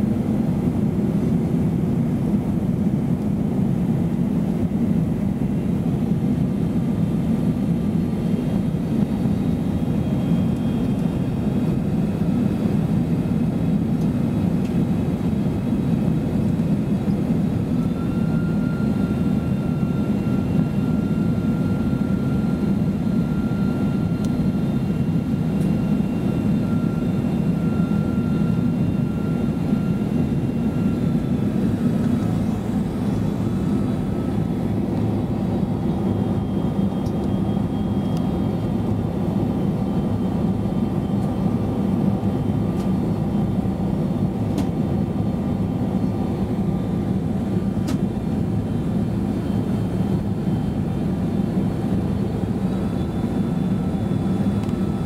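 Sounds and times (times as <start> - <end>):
deep rumble of engines and airflow: 0.0 - 55.0
faint high whine: 17.3 - 44.2.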